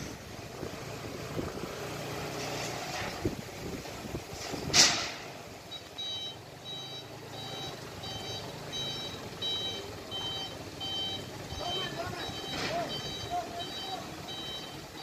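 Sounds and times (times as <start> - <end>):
truck engine hum: 0.0 - 15.0
truck reversing alarm beeping: 5.6 - 15.0.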